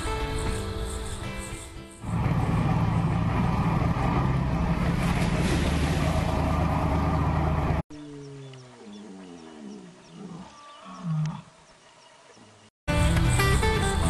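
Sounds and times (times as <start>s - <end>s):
motorboat engine running: 2.0s - 7.8s
rush of wind and water: 2.1s - 7.8s.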